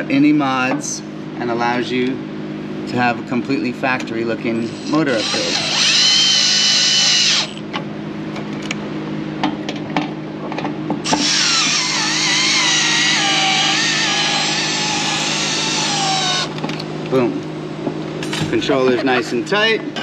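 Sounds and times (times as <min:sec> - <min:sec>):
cordless drill motor whine: 0:04.6 - 0:07.6, 0:11.0 - 0:16.6.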